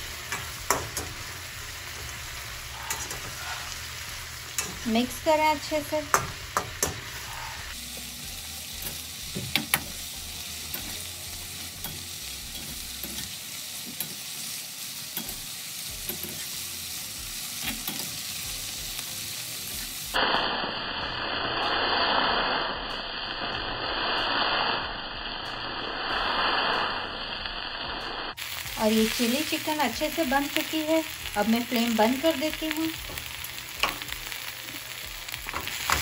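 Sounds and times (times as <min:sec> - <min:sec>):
food sizzling in a wok: 0:00.0 - 0:36.0
metal clicking on pan: 0:00.3 - 0:01.2, 0:06.1 - 0:07.2, 0:11.7 - 0:14.2.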